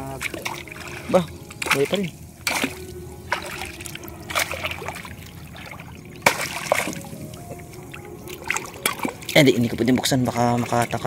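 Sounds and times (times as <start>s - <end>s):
shallow water splashing and trickling: 0.0s - 11.0s
short sharp splashes: 0.2s - 7.7s.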